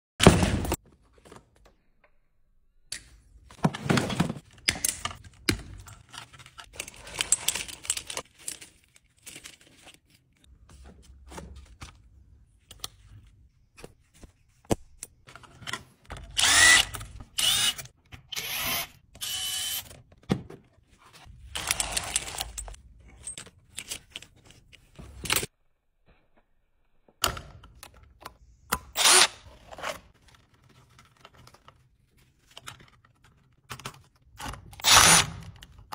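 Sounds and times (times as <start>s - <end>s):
cordless drill running: 16.4s - 19.9s, 29.0s - 29.4s, 34.8s - 35.2s.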